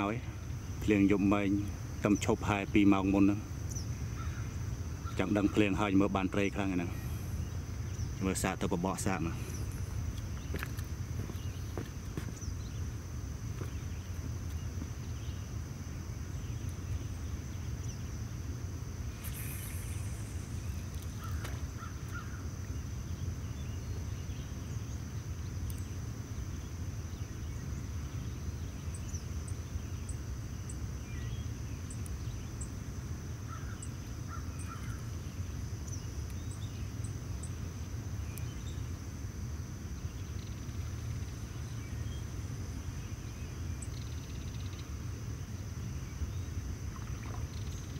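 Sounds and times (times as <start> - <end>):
high-pitched insect drone: 0.0 - 47.9
short bird calls: 19.1 - 22.5.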